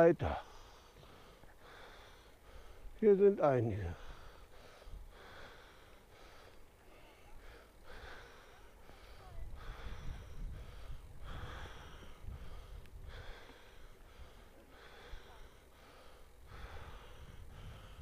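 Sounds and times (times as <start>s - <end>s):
cyclist breathing: 0.2s - 18.0s
low wind rumble on microphone: 8.9s - 15.2s, 15.8s - 18.0s.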